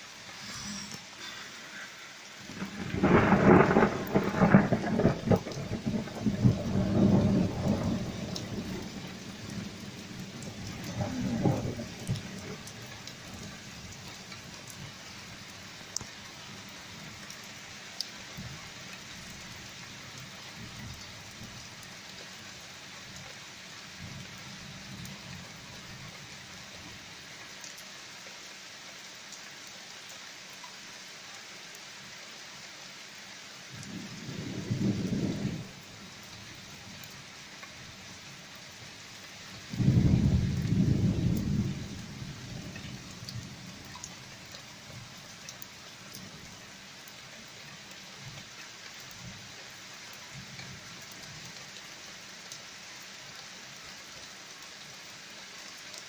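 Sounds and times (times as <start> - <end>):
steady rain: 0.0 - 56.0
low thunder rolls: 2.5 - 12.8, 33.8 - 35.8, 39.7 - 43.5.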